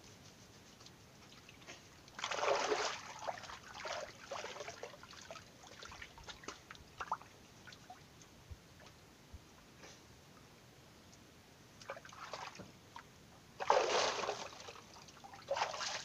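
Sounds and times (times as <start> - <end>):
water splashing and pouring: 2.1 - 7.2, 13.6 - 16.0.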